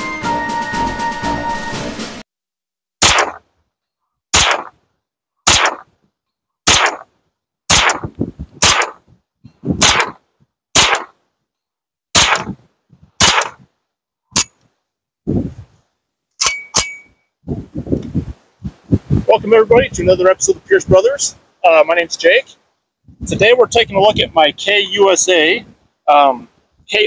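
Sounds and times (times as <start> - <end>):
gunshots: 3.0 - 3.4, 4.3 - 4.8, 5.4 - 5.9, 6.7 - 7.1, 7.7 - 9.0, 9.8 - 10.2, 10.8 - 11.2, 12.2 - 12.6, 13.2 - 13.7.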